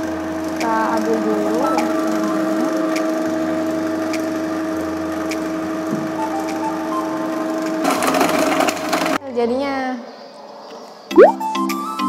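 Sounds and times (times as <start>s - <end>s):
vegetable shredder motor hum: 0.0s - 9.2s.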